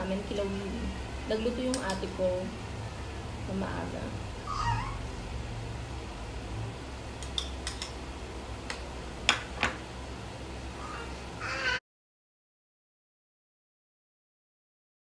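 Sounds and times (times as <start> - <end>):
low steady hum: 0.0 - 11.8
cutlery clinking against a plate: 7.2 - 8.0.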